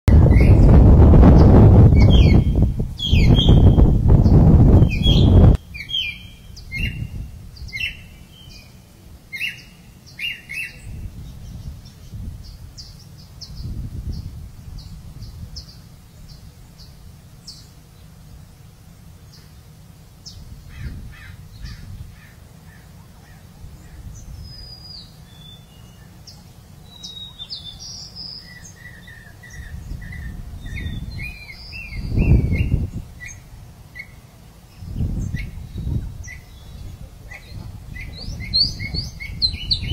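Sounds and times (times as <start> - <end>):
birds chirping and calling: 0.1 - 39.9.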